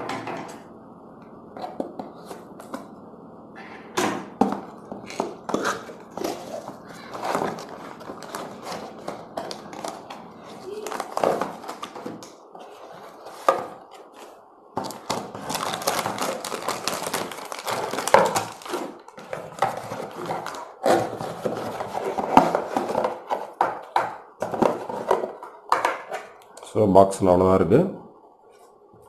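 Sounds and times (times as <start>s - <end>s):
plastic packaging crinkling: 5.0s - 23.3s
cardboard box rustling: 5.5s - 23.5s.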